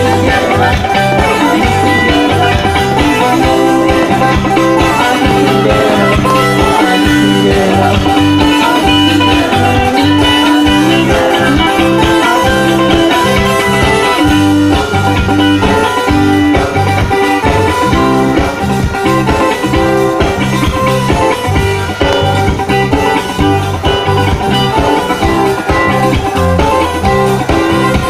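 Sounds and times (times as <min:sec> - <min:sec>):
background music with bass line: 0:00.0 - 0:28.0.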